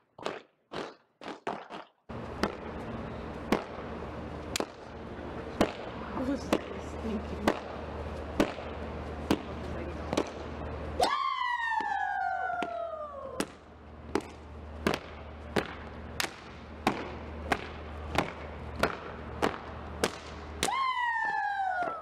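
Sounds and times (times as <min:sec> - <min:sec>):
siren-like falling tone: 0:11.0 - 0:13.4.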